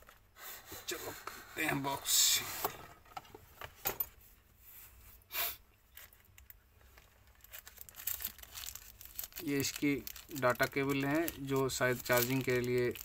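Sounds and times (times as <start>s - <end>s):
plastic pouch crinkling: 5.9s - 13.0s.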